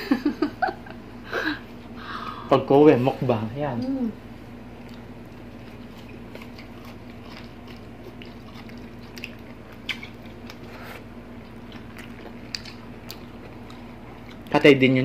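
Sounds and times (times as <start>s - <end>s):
people chewing and biting: 4.7s - 14.8s
wet mouth clicks and smacks: 8.1s - 10.6s, 11.7s - 14.4s.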